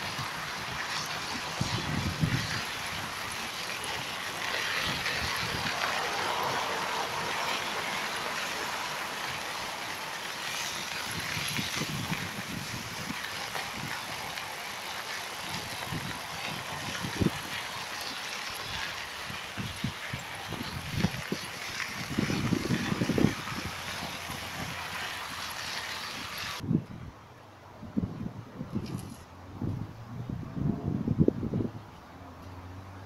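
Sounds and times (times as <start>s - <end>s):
wind buffeting microphone: 0.0s - 3.4s, 4.7s - 6.0s, 11.0s - 14.4s, 15.4s - 25.0s, 25.6s - 27.2s, 27.8s - 31.9s
bike rolling on pavement: 0.0s - 26.7s, 28.1s - 29.8s.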